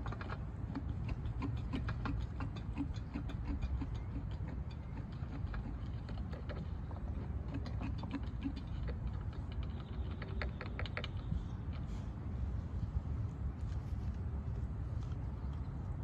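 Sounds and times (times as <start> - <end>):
steady low rumble: 10.9 - 16.0.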